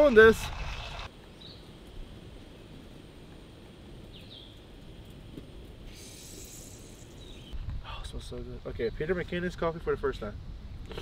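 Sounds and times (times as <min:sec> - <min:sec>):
bird chirp: 0:00.8 - 0:01.7, 0:05.9 - 0:07.6.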